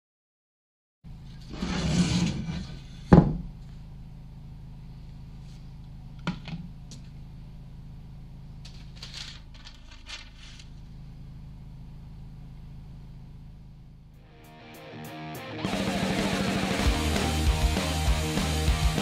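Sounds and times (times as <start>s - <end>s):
steady low hum: 2.2s - 15.0s
paper rustling: 8.7s - 10.7s.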